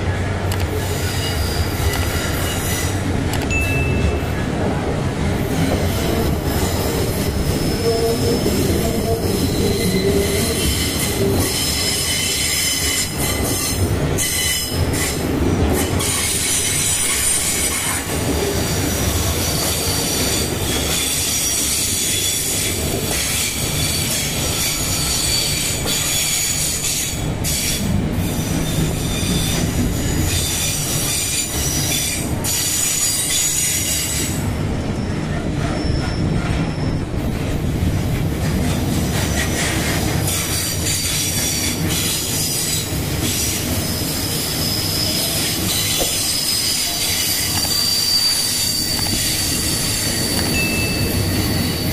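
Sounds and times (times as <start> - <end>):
train wheels clattering on rails: 0.0 - 51.9
wheel squeal: 35.0 - 37.0, 40.3 - 51.9.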